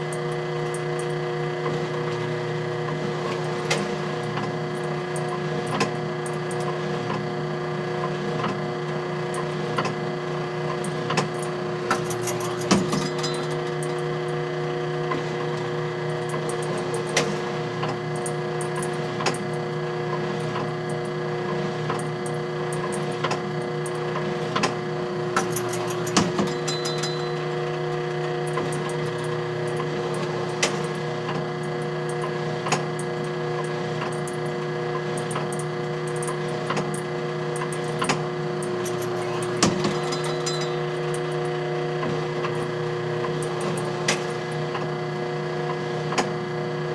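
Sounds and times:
motor hum: 0.0s - 46.9s
mechanical clicks and clacks: 25.4s - 42.7s.

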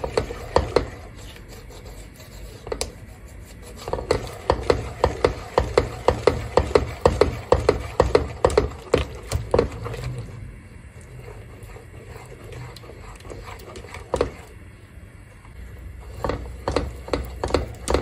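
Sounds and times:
whisk clicking against a pot: 0.0s - 1.1s, 3.8s - 10.1s, 11.4s - 14.6s, 16.0s - 18.0s.

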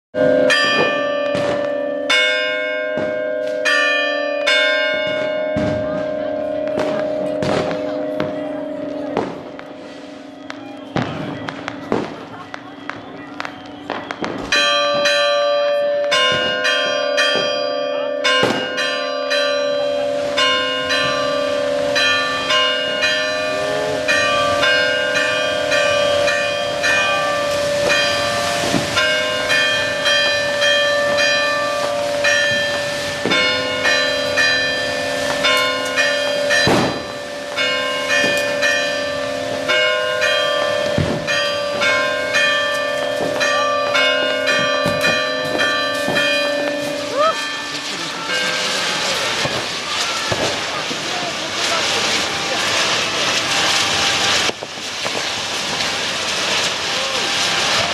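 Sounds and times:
church bells ringing rapidly: 0.1s - 57.9s
rockets banging: 5.0s - 15.3s, 18.3s - 19.0s, 23.0s - 57.9s.

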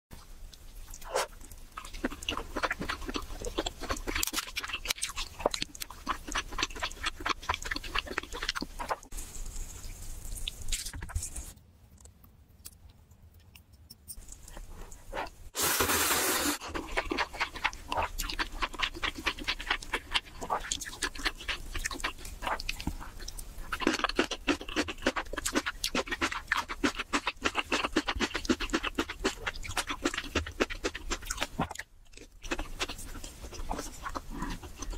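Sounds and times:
wet chewing: 0.5s - 9.2s, 16.6s - 34.9s.

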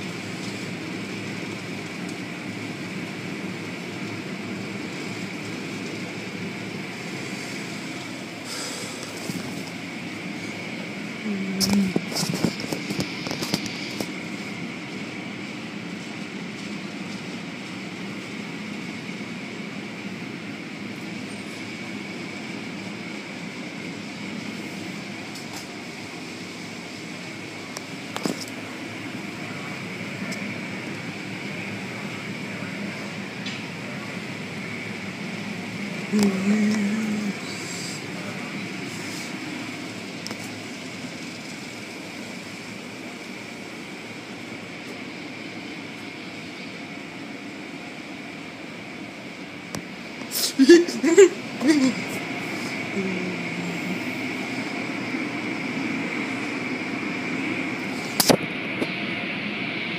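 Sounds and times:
car wash rushing noise: 0.0s - 59.9s
machine hum: 0.0s - 59.9s
thin high whine: 0.0s - 59.9s.

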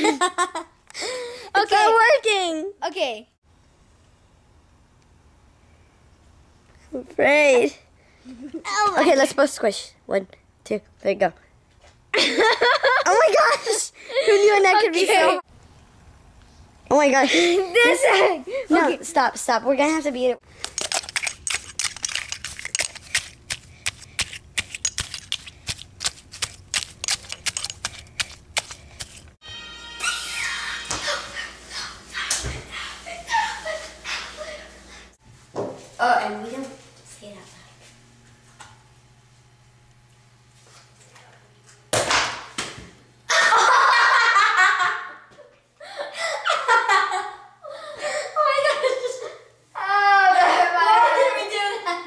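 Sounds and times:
girls giggling: 0.0s - 1.1s, 12.1s - 14.6s, 17.3s - 18.7s, 30.3s - 35.1s, 43.3s - 52.0s
girls shrieking: 30.0s - 34.6s, 49.8s - 51.2s
sharp smack: 41.9s - 42.9s.

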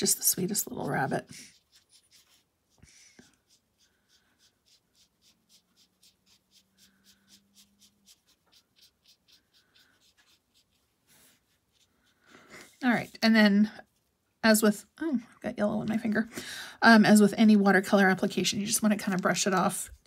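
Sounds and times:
brush pen strokes on card: 0.0s - 13.3s.

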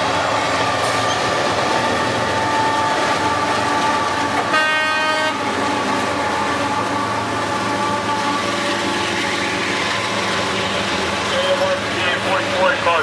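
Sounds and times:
freight train rumbling past: 0.0s - 13.0s
short train horn toot: 4.4s - 5.4s, 7.7s - 9.6s.

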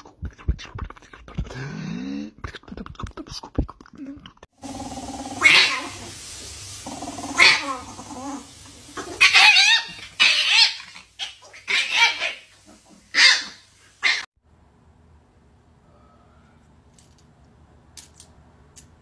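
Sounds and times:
animal growling: 4.6s - 9.3s
animals snarling: 4.6s - 14.3s.

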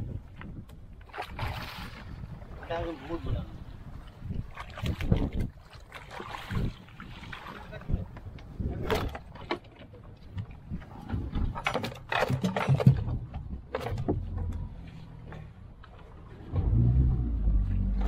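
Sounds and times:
low rumble: 13.0s - 18.0s.

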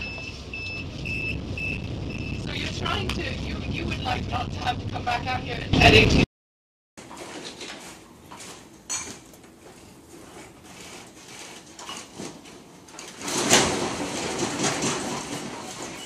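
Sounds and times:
ship creaking and rattling: 10.6s - 16.0s.

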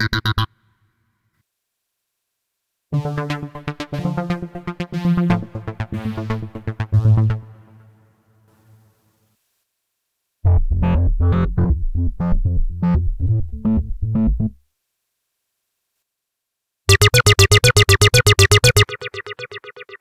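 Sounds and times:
acid bass synth sequence: 10.5s - 14.6s, 16.9s - 20.0s
distorted rapid synth notes: 16.9s - 20.0s.

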